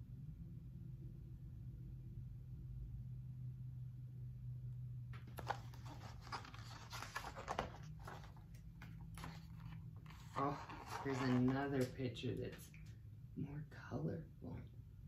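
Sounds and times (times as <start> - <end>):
low steady hum: 0.0 - 15.0
book pages turning: 5.2 - 12.0.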